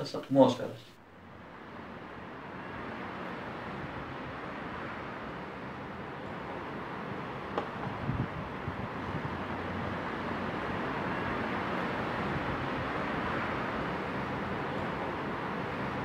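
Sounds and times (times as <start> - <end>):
street traffic noise: 0.8 - 16.0.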